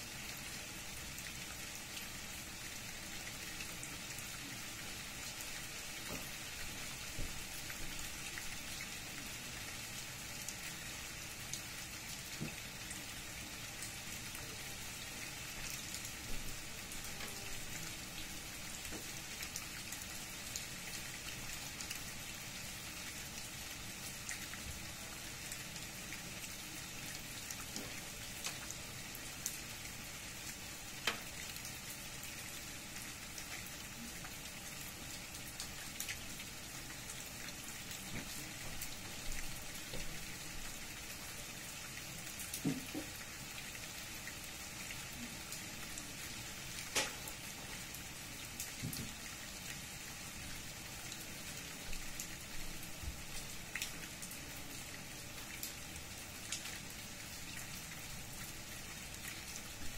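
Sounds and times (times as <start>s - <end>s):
rain falling on leaves: 0.0s - 59.9s.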